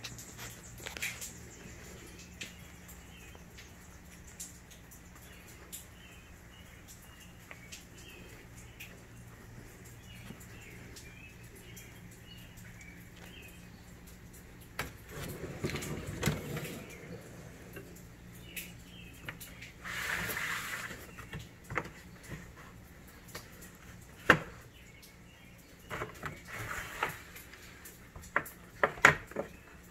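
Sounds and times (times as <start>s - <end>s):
rumble and small clicks: 0.0s - 19.8s
metal drawer slides rolling: 15.1s - 17.8s.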